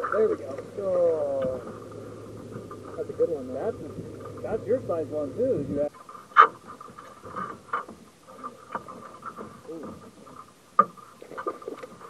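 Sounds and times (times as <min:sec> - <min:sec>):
quiet voices: 0:00.0 - 0:01.8, 0:02.8 - 0:05.9, 0:09.6 - 0:10.0
sharp knocks in a boat: 0:01.3 - 0:04.6, 0:05.9 - 0:12.0.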